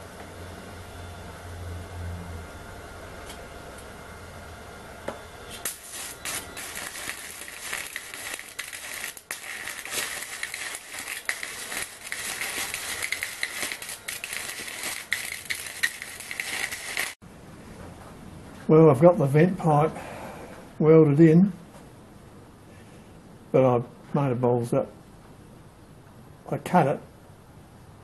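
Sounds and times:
welding arc crackling and popping: 5.5 - 17.2.

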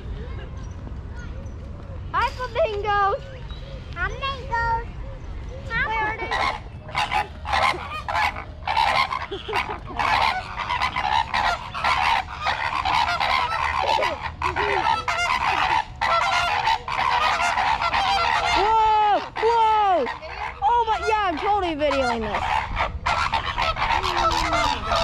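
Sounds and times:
flamingos honking: 5.8 - 25.0.

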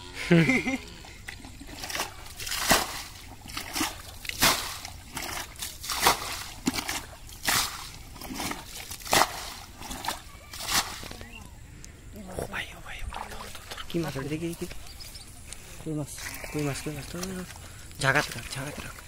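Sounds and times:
bucket splashing water: 1.0 - 11.3, 16.1 - 19.0.

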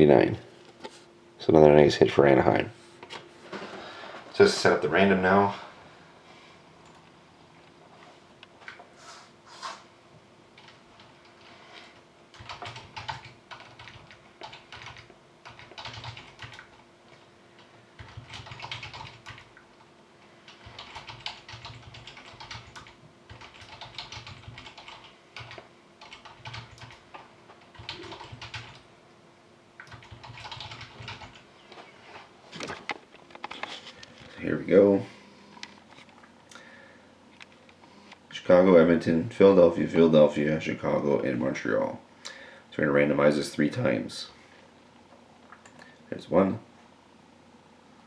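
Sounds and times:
faint steady hum: 0.0 - 48.0
computer keyboard typing: 10.6 - 11.1, 12.3 - 16.8, 18.0 - 19.6, 20.5 - 28.8, 29.8 - 31.4.

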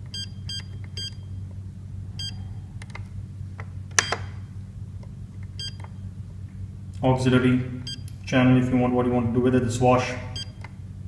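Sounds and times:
short electronic beeps: 0.0 - 1.4, 2.2 - 2.4, 5.6 - 5.8, 7.8 - 8.1, 10.4 - 10.6
low steady hum: 0.0 - 11.0.

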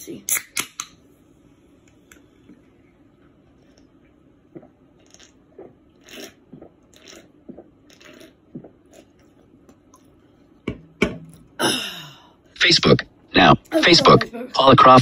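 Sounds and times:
person chewing and crunching: 4.6 - 10.1.

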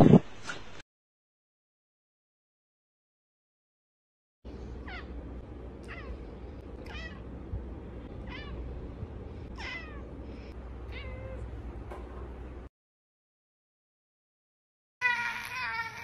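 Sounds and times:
steady low hum: 4.5 - 12.7
cat meowing: 5.8 - 6.2, 6.8 - 7.2, 8.2 - 8.6, 9.6 - 10.1, 10.9 - 11.5.

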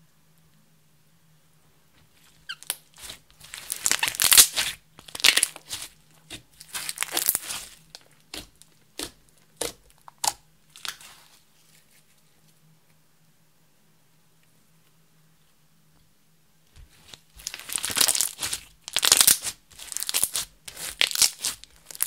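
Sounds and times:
slime popping: 2.5 - 11.1, 17.1 - 22.0
sticky slime crackling: 2.5 - 11.4, 16.8 - 22.0.

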